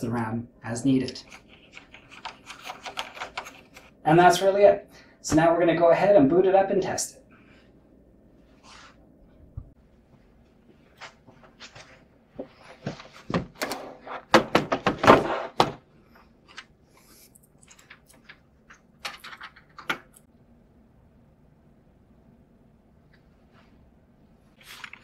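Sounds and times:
computer tower thunking on desk: 0:13.3 - 0:15.8.

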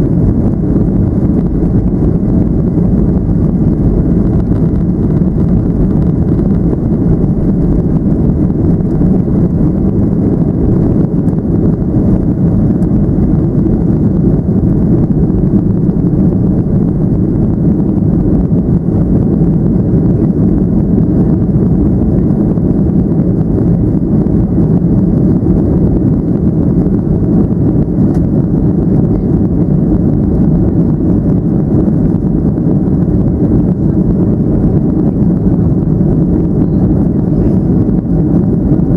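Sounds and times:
jet engines deep rumble: 0:00.0 - 0:38.9.

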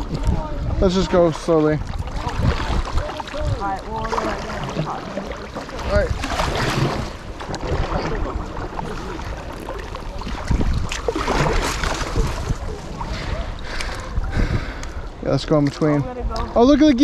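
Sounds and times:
kayak paddle splashing water: 0:00.0 - 0:16.5
wind buffeting microphone: 0:00.0 - 0:17.0.

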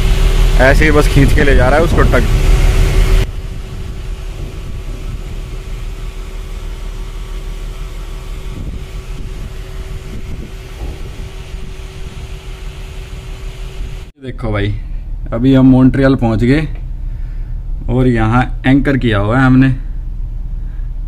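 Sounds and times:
constant hum: 0:00.0 - 0:21.0
ship machinery rumble: 0:00.0 - 0:21.0.

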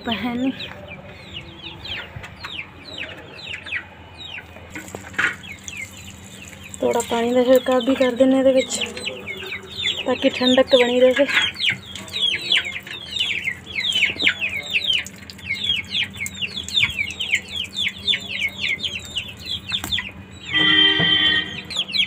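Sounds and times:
chicks peeping: 0:00.1 - 0:22.0
steady pitched tone: 0:20.5 - 0:21.9.

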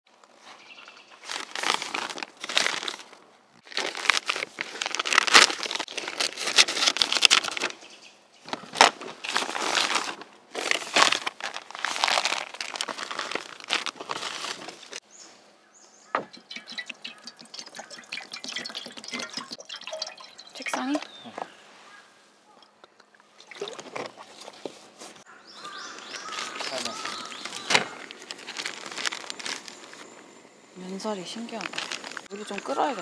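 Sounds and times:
plastic packaging crinkling: 0:01.1 - 0:07.8, 0:08.5 - 0:15.0, 0:25.6 - 0:30.2, 0:31.4 - 0:32.8.

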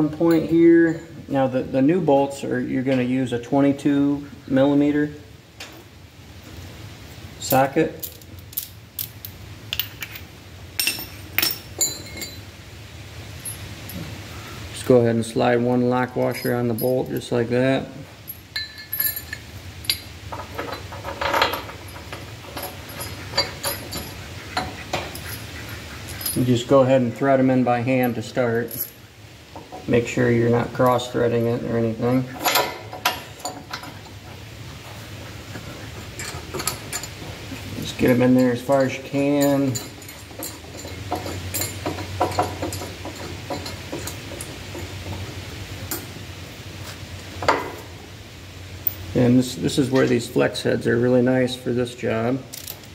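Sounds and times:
light metallic clinks and knocks: 0:00.0 - 0:01.6, 0:07.4 - 0:12.6, 0:13.3 - 0:14.2, 0:15.7 - 0:17.6, 0:18.2 - 0:48.0, 0:48.8 - 0:49.1, 0:52.5 - 0:52.9
metal clicks of bolts threading: 0:18.3 - 0:25.4, 0:32.2 - 0:34.2, 0:36.2 - 0:45.2, 0:52.5 - 0:52.9.

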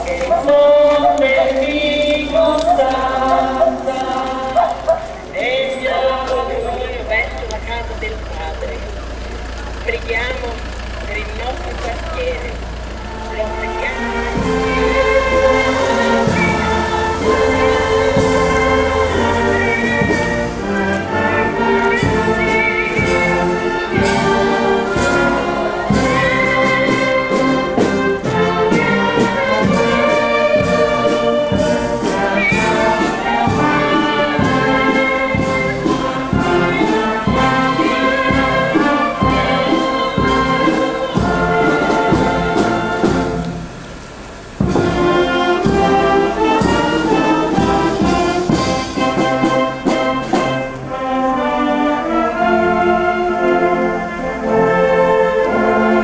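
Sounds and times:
brass playing processional tune: 0:00.0 - 0:56.0
steady drum beat: 0:10.1 - 0:50.8.

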